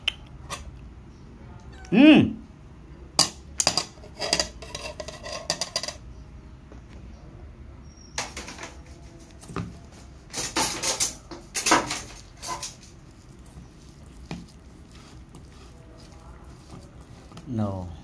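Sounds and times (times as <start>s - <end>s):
metal spoon scraping a pot: 3.6s - 6.0s, 10.3s - 17.4s.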